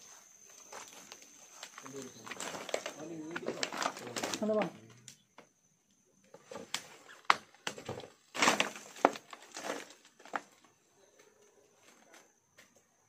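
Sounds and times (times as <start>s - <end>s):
scuffing and crunching: 8.4s - 10.6s.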